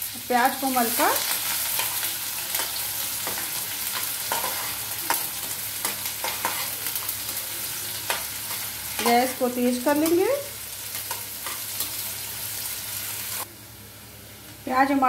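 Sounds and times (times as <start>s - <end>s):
onions sizzling in hot oil: 0.0s - 15.0s
metal spoon scraping a pan: 1.1s - 7.4s.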